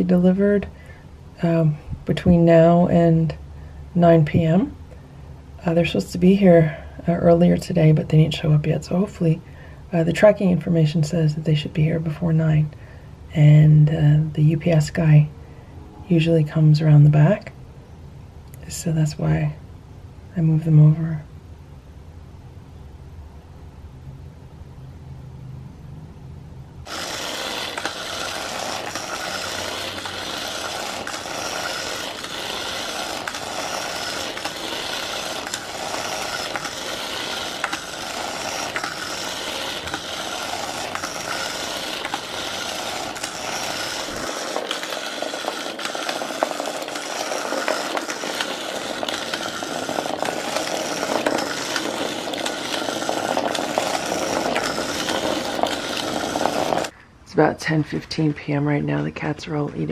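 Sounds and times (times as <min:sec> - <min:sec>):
toy motor rattling buzz: 0:26.8 - 0:56.9.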